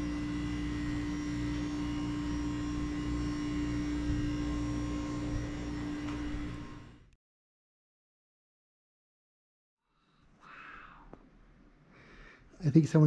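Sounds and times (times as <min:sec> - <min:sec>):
electrical hum: 0:00.0 - 0:07.2.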